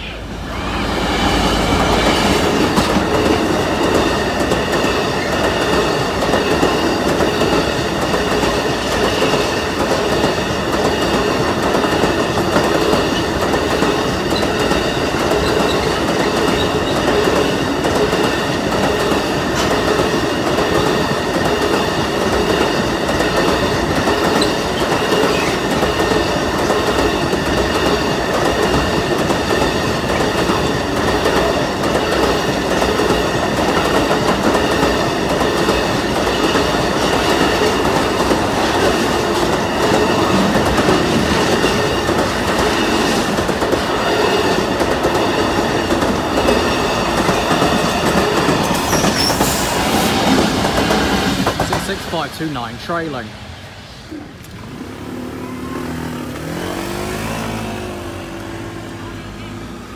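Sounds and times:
diesel locomotive rumble: 0.0 - 59.9
train wheels clattering over rails: 0.9 - 52.5.

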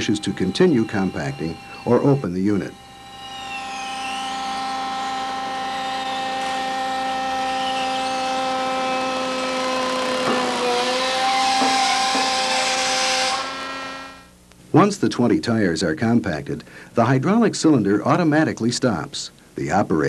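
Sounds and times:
hydraulic power unit whining: 0.0 - 14.4.

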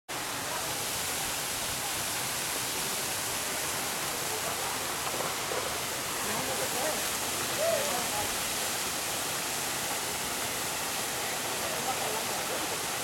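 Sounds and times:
creek water running: 0.1 - 13.0.

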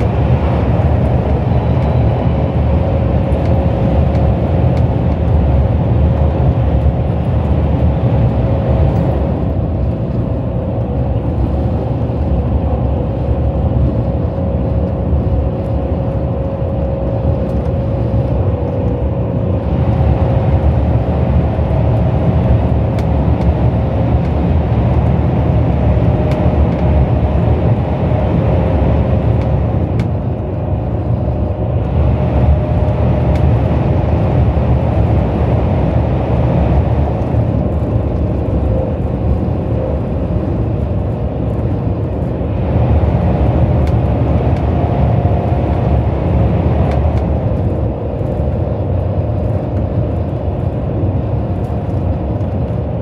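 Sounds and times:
train cabin rumble: 0.0 - 53.0
light ticks: 43.8 - 44.0.

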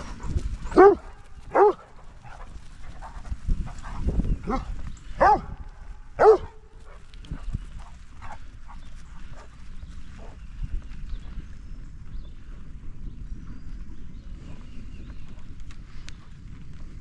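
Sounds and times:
dog barking: 0.7 - 1.8, 4.5 - 5.5, 6.2 - 6.6.

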